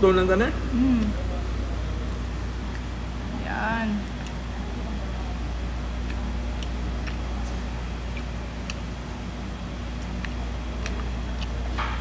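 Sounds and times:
low room hum: 0.0s - 12.0s
person chewing and licking fingers: 2.1s - 2.9s, 4.1s - 4.5s, 5.9s - 11.8s.

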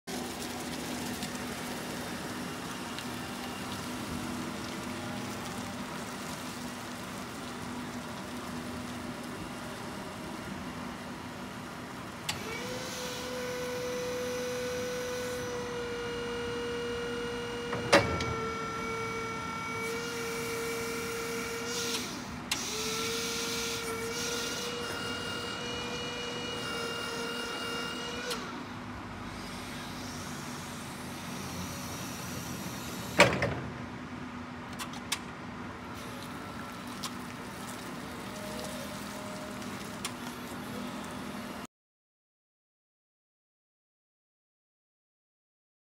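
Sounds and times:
electric forklift humming: 9.2s - 21.7s
hydraulic pump motor whining: 12.2s - 33.7s.

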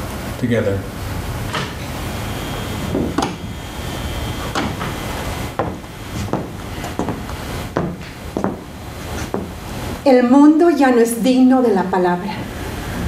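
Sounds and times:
footsteps on stage floor: 4.4s - 9.6s.

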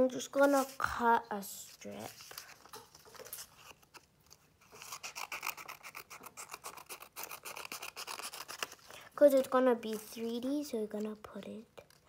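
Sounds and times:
paper handling: 0.2s - 1.0s, 1.7s - 9.0s
scissors snipping paper: 4.6s - 9.0s.

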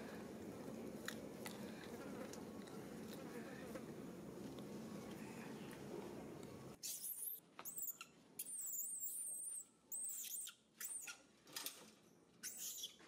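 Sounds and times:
baby monkey squealing: 6.8s - 11.2s, 12.4s - 13.0s.

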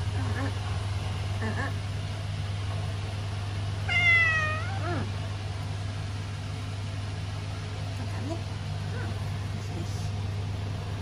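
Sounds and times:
cat meowing: 3.9s - 5.1s.

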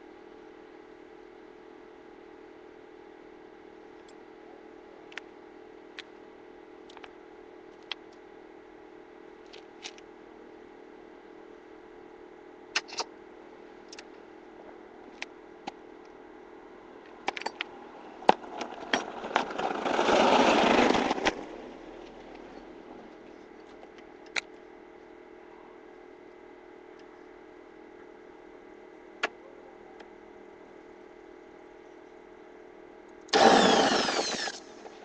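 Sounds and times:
faint steady hum: 0.0s - 35.0s
loud noisy whir: 18.3s - 23.2s, 33.3s - 35.0s.

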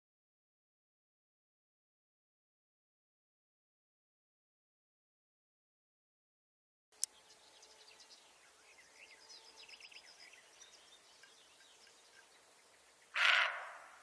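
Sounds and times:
small birds chirping: 7.0s - 14.0s
deer barking: 13.1s - 14.0s.

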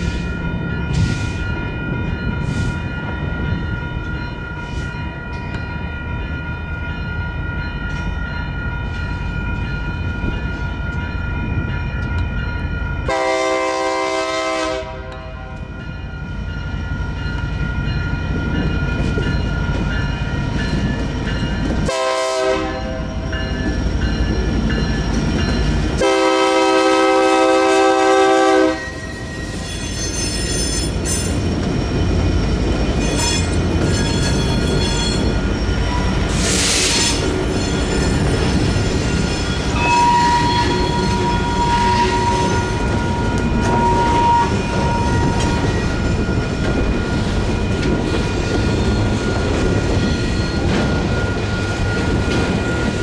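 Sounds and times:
crossing bells ringing: 0.0s - 53.0s
locomotive horn blasts: 13.1s - 15.6s, 21.9s - 23.0s, 26.0s - 29.1s, 39.8s - 42.8s, 43.6s - 45.6s.

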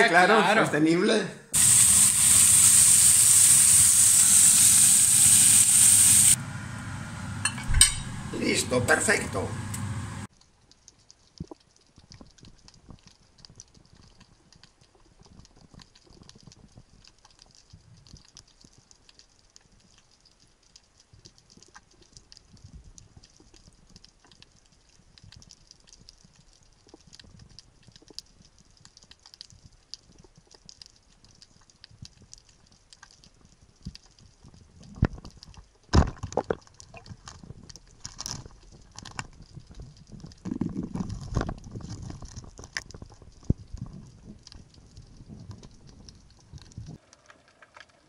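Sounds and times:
underwater crackle of clicks: 10.4s - 48.0s.

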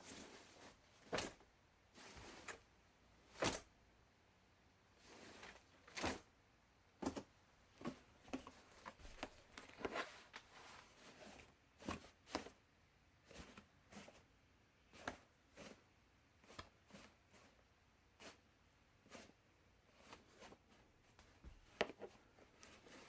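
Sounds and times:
laundry basket knocks and clicks: 7.0s - 10.0s.

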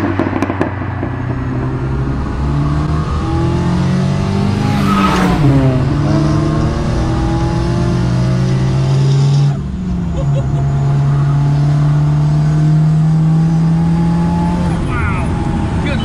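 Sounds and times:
car engine passing by: 0.0s - 9.6s.

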